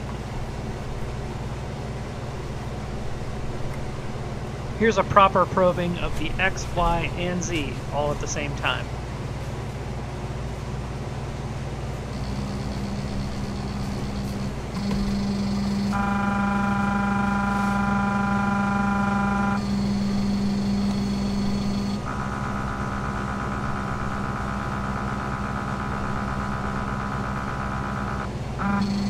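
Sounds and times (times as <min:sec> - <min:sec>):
stepper motors whining: 0:12.1 - 0:29.0.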